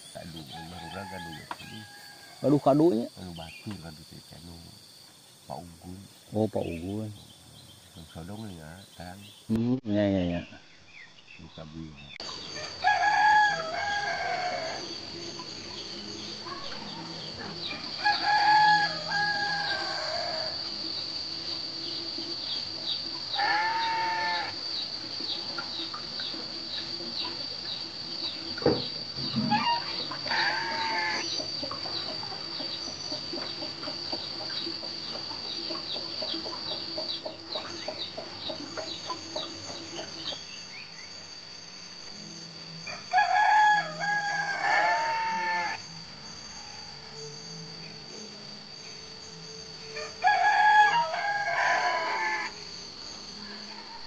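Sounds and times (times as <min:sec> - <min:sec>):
rooster crowing: 0:00.2 - 0:02.9, 0:12.5 - 0:20.8, 0:23.3 - 0:24.7, 0:29.3 - 0:31.7, 0:42.8 - 0:46.4, 0:50.0 - 0:52.8, 0:53.4 - 0:54.0.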